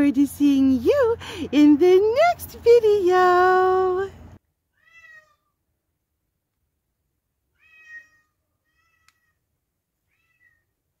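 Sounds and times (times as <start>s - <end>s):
cat meowing faintly: 4.8s - 5.5s, 7.6s - 9.4s.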